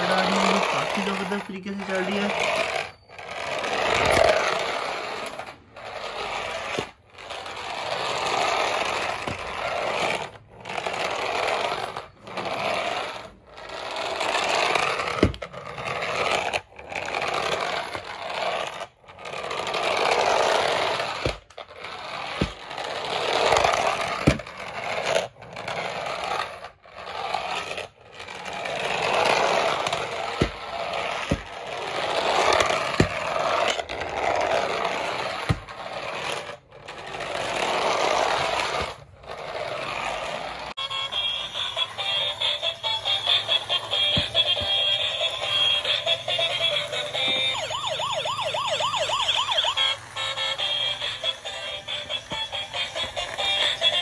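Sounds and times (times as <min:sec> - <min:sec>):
toy car motor whirring: 0:00.0 - 0:54.0
toy car knocks: 0:15.1 - 0:15.5, 0:43.3 - 0:45.8, 0:46.6 - 0:47.8.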